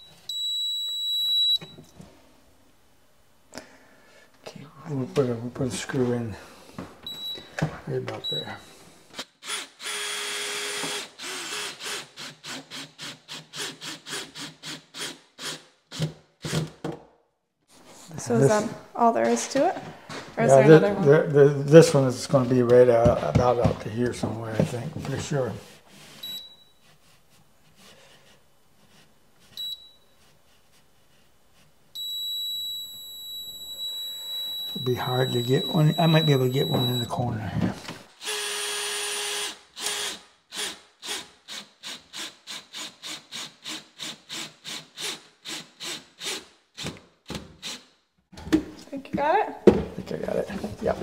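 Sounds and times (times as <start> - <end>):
stud finder beeping: 0.0 - 2.0, 7.0 - 8.7, 26.2 - 26.9, 29.5 - 30.2, 32.0 - 37.3
cordless drill driving a screw: 9.1 - 16.1, 38.2 - 47.0, 47.6 - 47.9.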